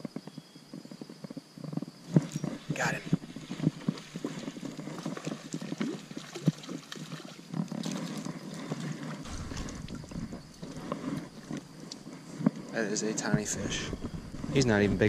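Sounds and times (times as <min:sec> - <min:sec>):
low rumble: 0:09.3 - 0:12.2, 0:13.4 - 0:15.0.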